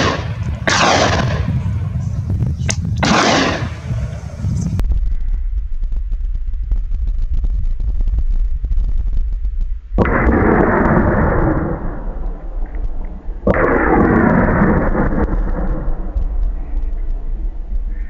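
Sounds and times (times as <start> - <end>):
gunshots with rolling echo: 0.0 - 2.0, 3.0 - 4.3, 10.0 - 17.3
low rumble: 0.0 - 18.0.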